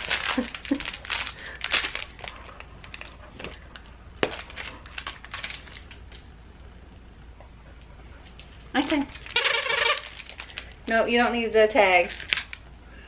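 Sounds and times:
plush toy crinkling: 0.0s - 6.3s, 8.4s - 11.0s, 12.0s - 12.6s.

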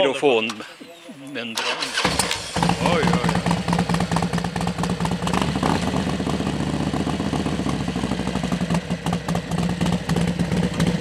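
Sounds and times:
motorcycle engine idling: 2.3s - 11.0s.

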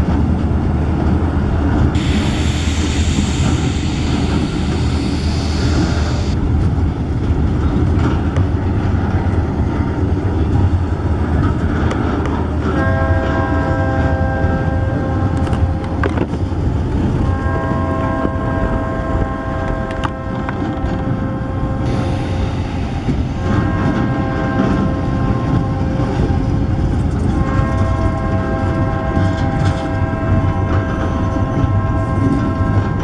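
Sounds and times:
freight cars rumbling and clattering: 0.0s - 33.0s
locomotive air horn blasts: 12.6s - 16.2s, 17.2s - 22.5s, 23.4s - 33.0s.

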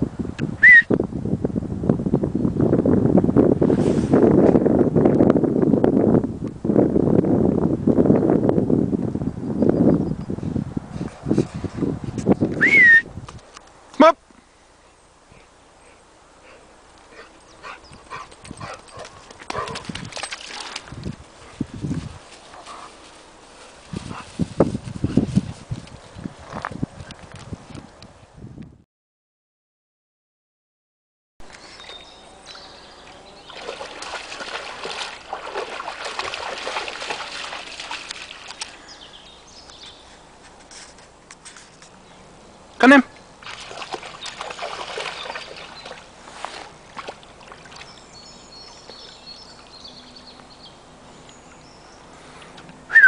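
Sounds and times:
dog paws galloping on mud: 16.9s - 28.0s, 31.8s - 38.8s, 43.4s - 49.6s
water trickling: 46.8s - 50.6s.

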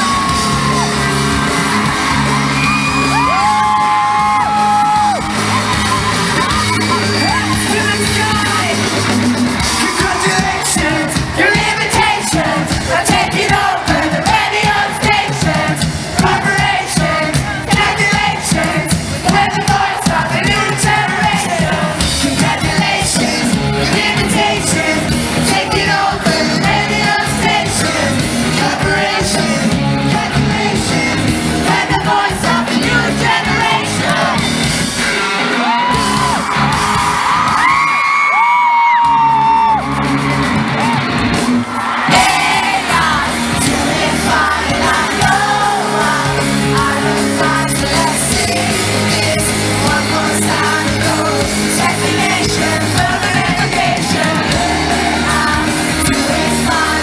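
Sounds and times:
crowd singing along and shouting: 0.0s - 57.0s
drums: 0.0s - 57.0s
live rock band playing: 0.0s - 57.0s
lead vocals singing: 9.4s - 36.6s, 41.7s - 57.0s.

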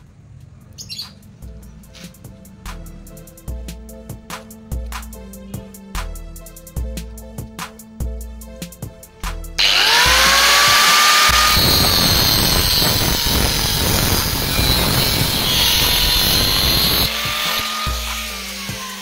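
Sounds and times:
background music with a beat: 1.2s - 11.2s, 17.0s - 19.0s
angle grinder cutting steel: 9.6s - 19.0s.

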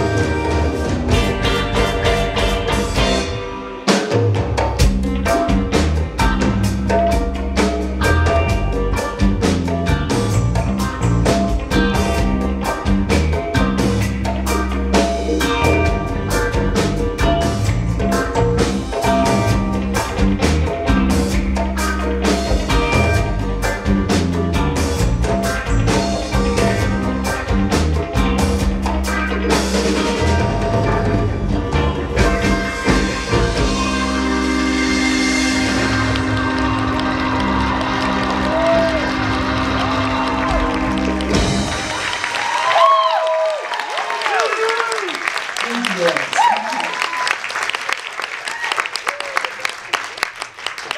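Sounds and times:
electric bass: 0.0s - 3.8s, 4.4s - 42.8s
drum kit steady beat: 0.0s - 43.0s
electric guitars: 0.0s - 43.2s
congas: 0.0s - 43.6s.

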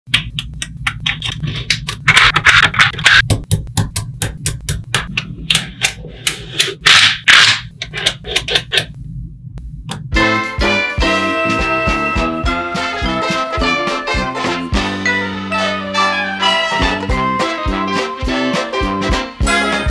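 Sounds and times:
swing brass music: 10.1s - 19.9s.

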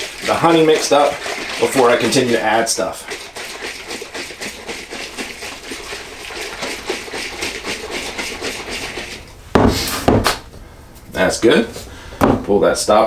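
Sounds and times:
liquid sloshing in glass jug: 0.0s - 9.8s
loud thump: 9.5s - 10.4s.

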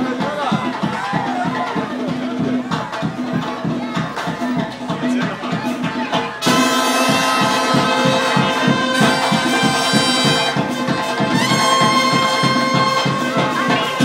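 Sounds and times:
steady quick beat: 0.0s - 14.0s
marching band brass playing: 5.7s - 14.0s.

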